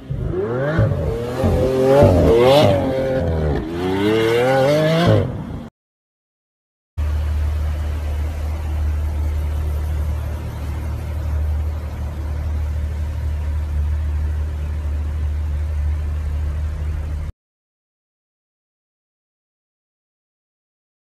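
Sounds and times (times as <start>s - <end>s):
car engine idling: 7.0s - 17.3s.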